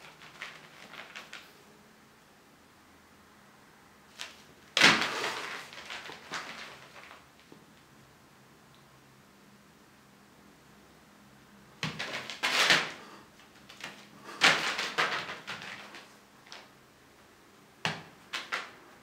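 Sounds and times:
plastic tarp crinkling: 0.0 - 1.5, 4.1 - 7.5, 11.8 - 16.7.

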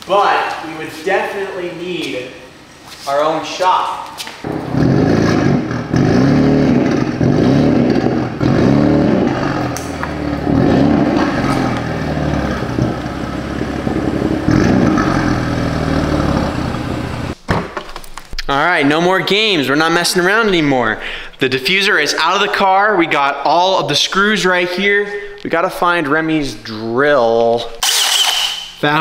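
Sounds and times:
car engine revving: 4.4 - 17.4.

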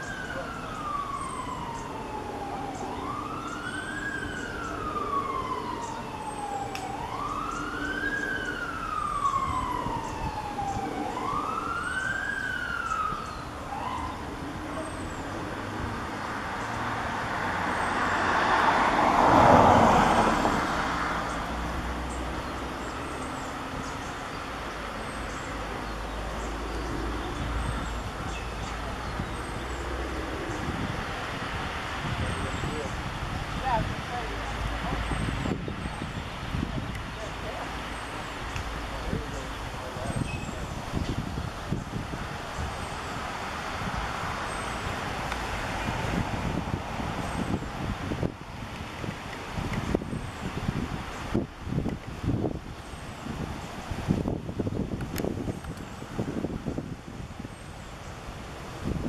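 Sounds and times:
emergency siren wailing: 0.0 - 48.3
vehicle passing by: 0.0 - 51.5.

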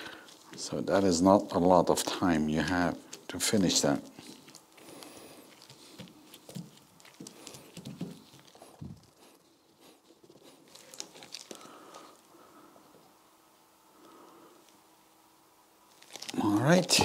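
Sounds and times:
gloved hands dabbing and rustling: 0.0 - 13.2.

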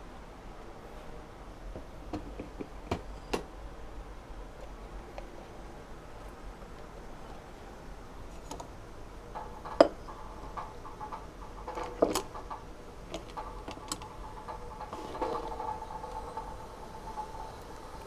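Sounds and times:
faint steady hum: 0.0 - 18.0
clicks and knocks of objects handled: 8.3 - 18.0.

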